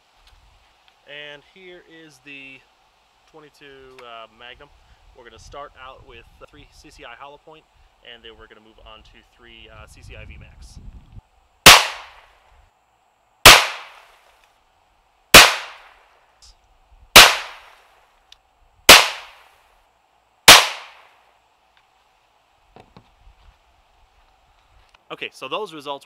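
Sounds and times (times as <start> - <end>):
rifle shots: 11.6 - 12.2, 13.4 - 14.1, 15.3 - 15.9, 17.2 - 17.7, 18.9 - 19.4, 20.5 - 21.1.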